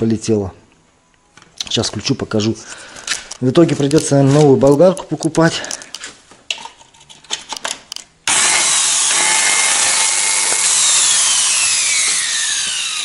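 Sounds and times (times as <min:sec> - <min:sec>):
angle grinder motor running: 0:08.3 - 0:13.0.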